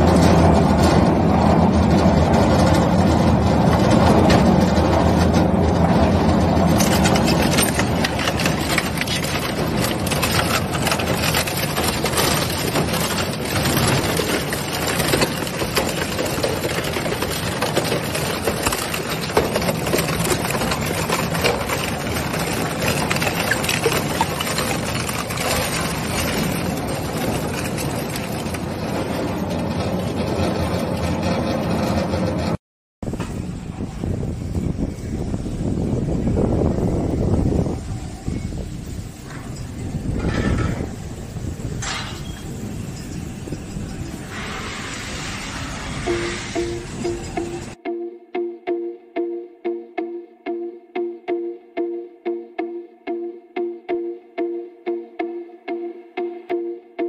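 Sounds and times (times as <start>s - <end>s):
shredder running: 6.4s - 29.9s.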